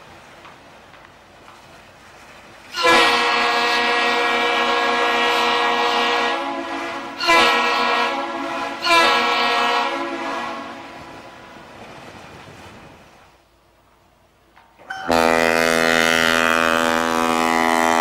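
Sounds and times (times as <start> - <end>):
ship's horn blasts: 2.7 - 11.7, 14.9 - 18.0.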